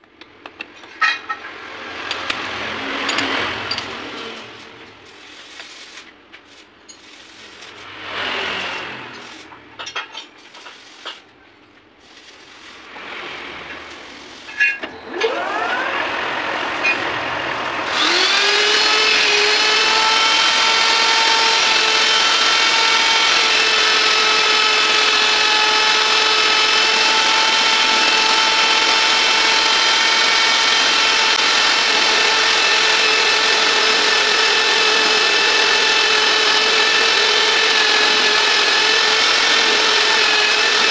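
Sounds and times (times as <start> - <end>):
grinder high-pitched whine: 1.9 - 11.2, 12.0 - 40.9
motor spinning up: 15.0 - 20.4.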